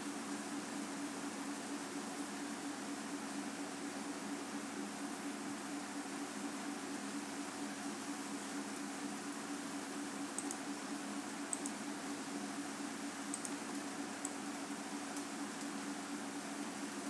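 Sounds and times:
computer mouse clicks: 10.3 - 10.6, 11.5 - 11.8, 13.3 - 13.6, 14.2 - 14.4.

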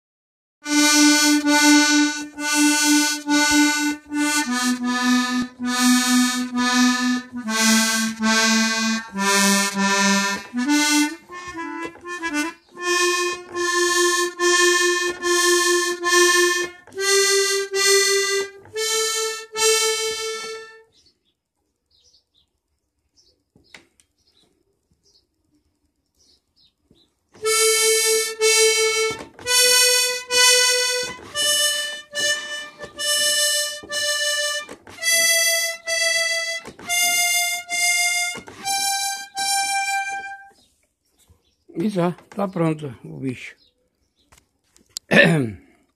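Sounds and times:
accordion reed notes: 0.6 - 20.9, 27.4 - 40.6.

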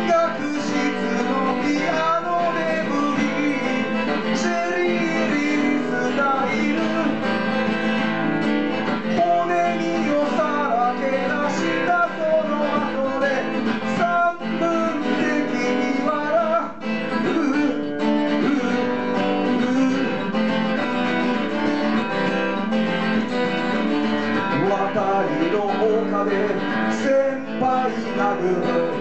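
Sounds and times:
acoustic guitar strumming: 0.0 - 29.0.

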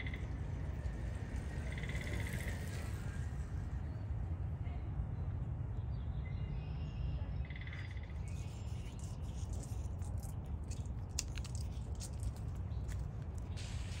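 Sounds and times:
low outdoor rumble: 0.0 - 14.0
squirrel rustling in dry leaves: 7.8 - 14.0.

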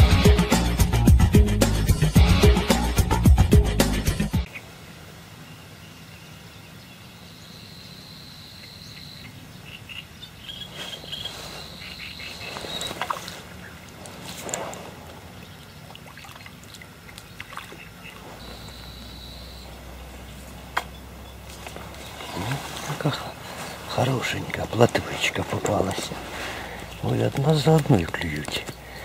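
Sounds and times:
intro music: 0.0 - 4.5
high steady insect-like buzz: 1.7 - 27.2
faint rustling: 10.6 - 15.8, 18.0 - 29.0
water splashes: 12.4 - 18.5
fish splashing at surface: 12.6 - 18.3.

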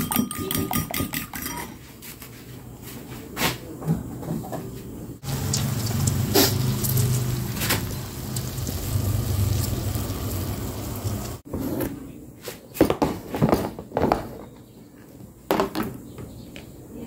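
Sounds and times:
egg sizzling in hot oil: 5.2 - 11.4.

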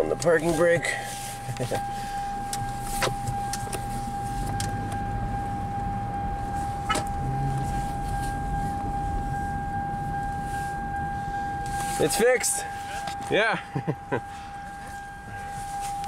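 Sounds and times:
car and tyres rumbling: 0.0 - 16.0
steady high whine: 0.0 - 16.0.

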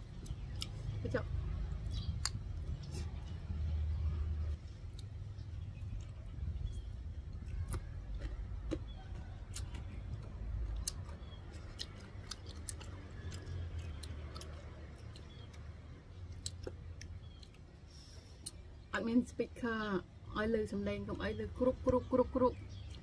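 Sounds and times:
crunchy chewing: 0.0 - 1.0, 1.6 - 18.7.

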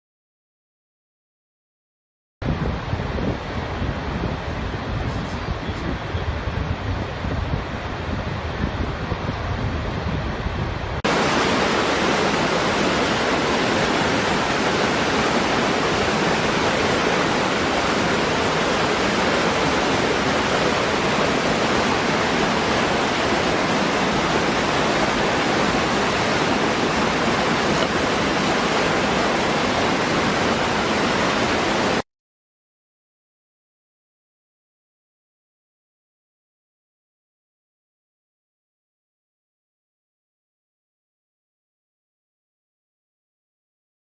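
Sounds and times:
waterfall pouring over rocks: 11.1 - 32.0.

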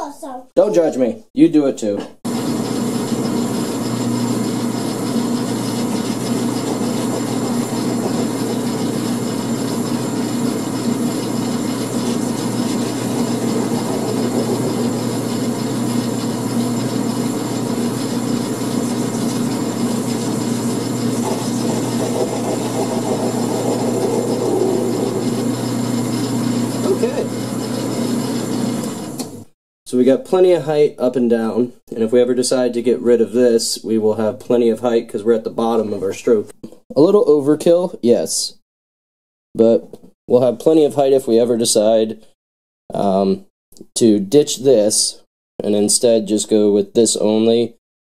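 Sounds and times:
lathe tool cutting brass rod: 2.3 - 29.5
metal lathe running: 2.3 - 29.5.

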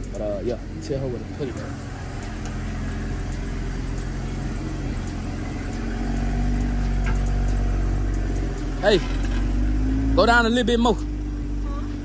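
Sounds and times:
car engine at low speed: 0.0 - 12.0.

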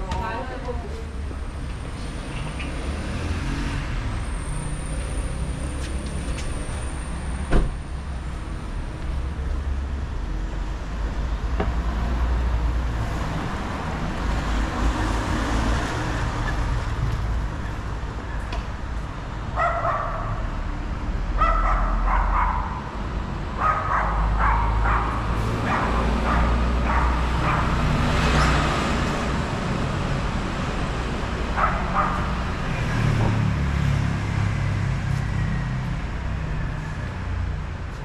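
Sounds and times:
traffic rumbling: 0.0 - 38.0
vehicle passing: 19.5 - 38.0
dog barking: 19.6 - 20.5, 21.4 - 22.9, 23.6 - 27.8, 31.5 - 32.4.

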